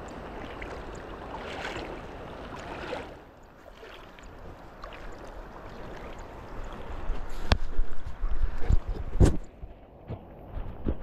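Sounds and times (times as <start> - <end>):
rushing water: 0.0 - 10.7
wind rumble on microphone: 4.2 - 11.0.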